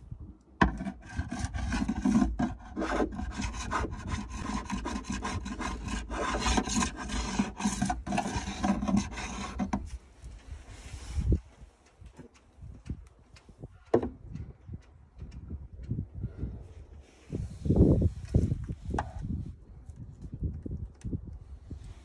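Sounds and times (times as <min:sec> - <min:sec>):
chisel scraping boat deck: 0:00.6 - 0:10.0.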